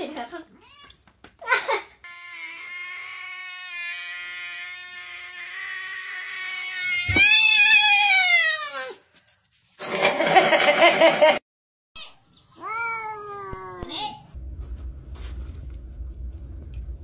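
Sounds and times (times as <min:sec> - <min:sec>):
cat yowling: 0:02.0 - 0:09.0.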